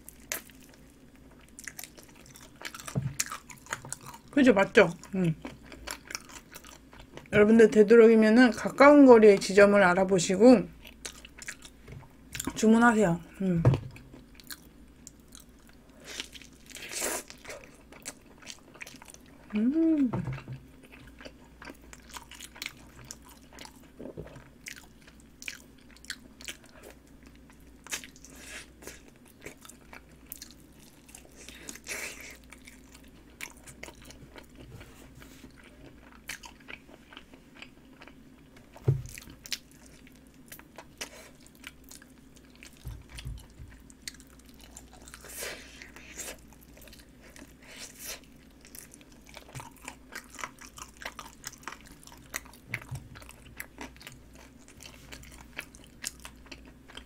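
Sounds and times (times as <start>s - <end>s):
chewing and biting: 1.4s - 4.3s, 5.4s - 7.3s, 20.8s - 57.0s.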